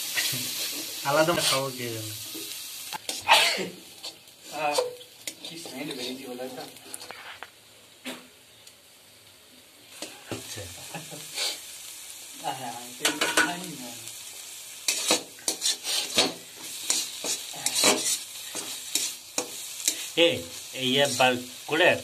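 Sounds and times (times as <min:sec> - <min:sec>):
metal spatula scraping a pan: 0:00.0 - 0:03.3, 0:03.9 - 0:07.4, 0:13.0 - 0:13.6, 0:14.8 - 0:21.4
mushrooms sizzling in oil: 0:00.0 - 0:22.0.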